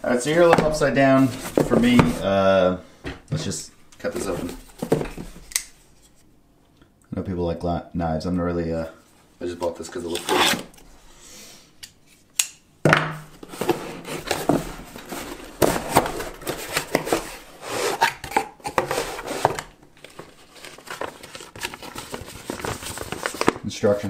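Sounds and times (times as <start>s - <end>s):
paper rustling and crinkling: 0.3s - 2.4s, 13.4s - 24.0s
cardboard box being opened: 13.4s - 23.6s.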